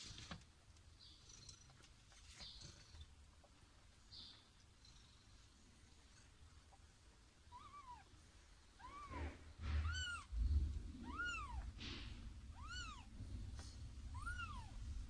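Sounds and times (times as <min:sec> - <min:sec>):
kittens mewing: 0:08.8 - 0:10.4, 0:11.0 - 0:11.8, 0:12.5 - 0:13.1, 0:14.1 - 0:14.8
loud low rumble: 0:09.2 - 0:15.0.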